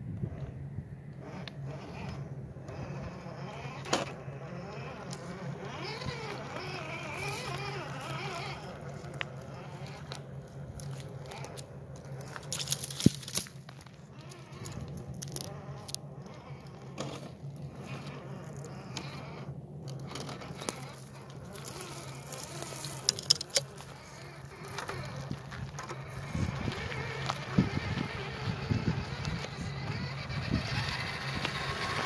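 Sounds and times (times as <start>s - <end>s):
electric motor humming: 1.1s - 32.0s
rocks knocking under wheels: 5.9s - 16.0s, 19.9s - 32.0s.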